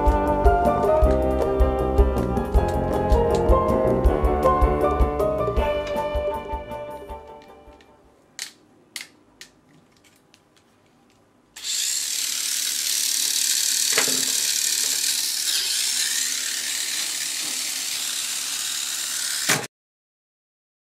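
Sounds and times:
mechanical whirr: 11.6 - 19.7.

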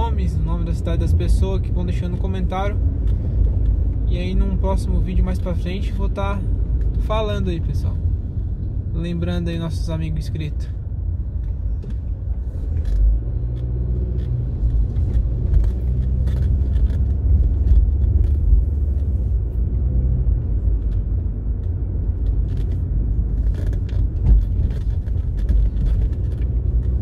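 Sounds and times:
car engine and tyre rumble: 0.0 - 27.0
light clicks and rattles: 20.7 - 27.0.

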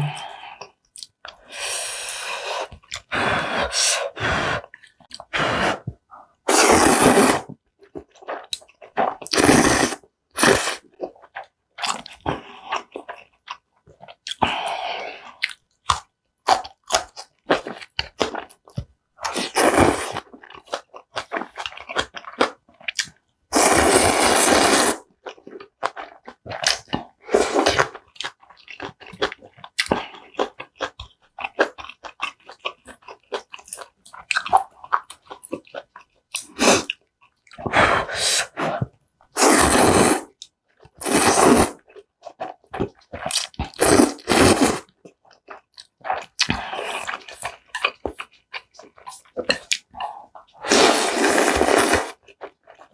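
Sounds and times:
wet slurps of noodles: 1.4 - 7.6, 8.4 - 10.9, 23.5 - 25.0, 37.6 - 40.4, 41.0 - 41.8, 43.4 - 44.9, 50.3 - 52.8
chewing: 10.8 - 14.6, 15.2 - 23.2, 25.1 - 37.8, 38.6 - 52.9.

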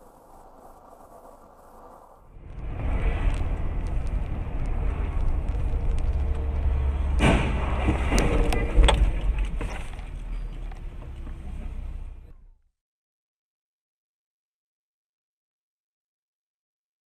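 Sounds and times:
car road and engine rumble: 0.0 - 12.6
car crash: 2.4 - 10.6
sharp bangs and clatter: 2.6 - 10.0.

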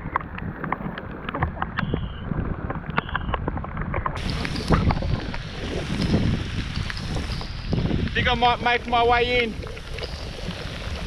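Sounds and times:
raindrops ticking near microphone: 0.0 - 11.0
heavy rain on water: 4.2 - 11.0.

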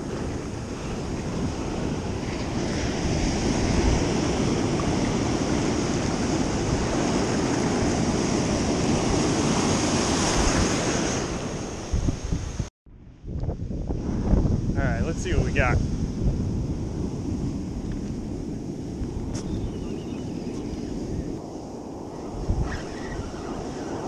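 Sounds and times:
ocean waves breaking: 0.0 - 12.0, 20.0 - 24.0.

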